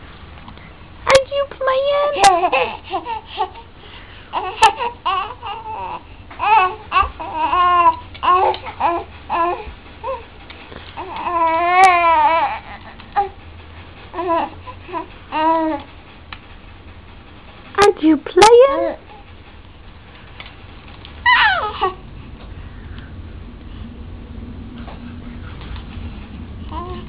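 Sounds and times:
baby cooing and babbling: 4.3 - 10.2, 21.2 - 22.0
baby squealing: 21.2 - 22.0.

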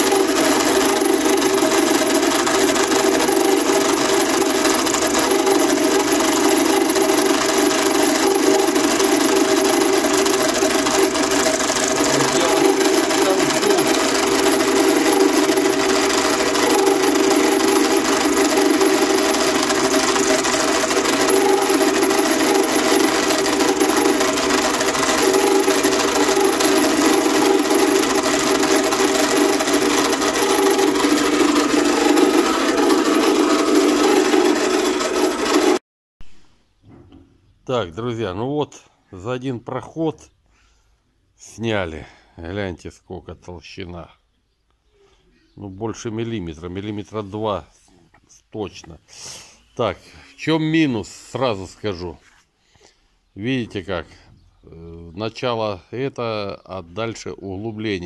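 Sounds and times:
end mill cutting metal: 0.0 - 35.8
drill press running: 0.0 - 36.4.

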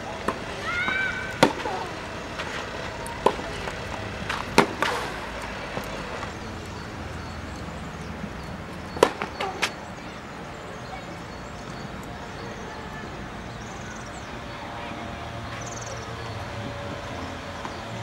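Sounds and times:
tennis balls struck by rackets: 0.0 - 10.6.

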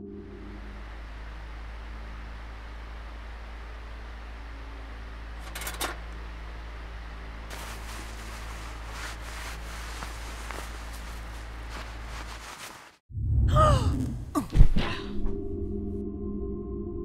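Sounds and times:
low mechanical room hum: 0.0 - 13.0
cloth rustling: 7.5 - 13.0.

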